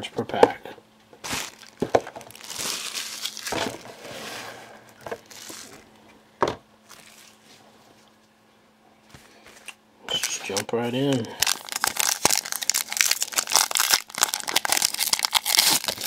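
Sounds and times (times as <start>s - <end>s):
card packaging crinkling: 1.2s - 4.1s, 4.9s - 5.9s, 9.6s - 16.0s.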